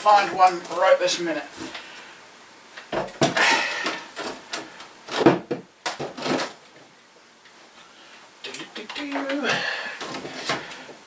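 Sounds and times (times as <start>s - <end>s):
boards knocking and scraping on shelf: 2.8s - 6.9s.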